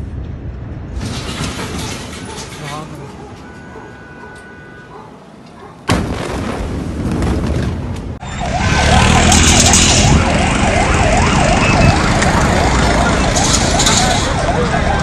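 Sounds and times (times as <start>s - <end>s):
siren wailing: 3.4s - 5.0s, 8.2s - 15.0s
explosion blast: 5.9s - 7.9s.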